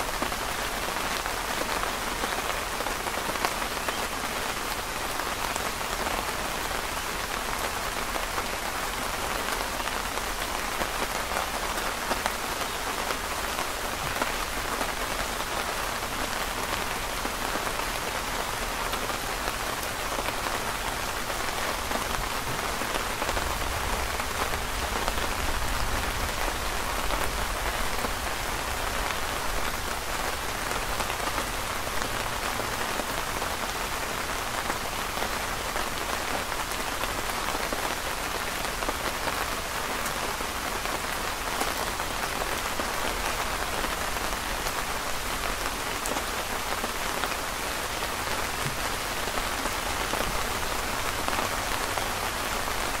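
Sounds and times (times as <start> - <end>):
rain on a canopy: 0.0 - 53.0.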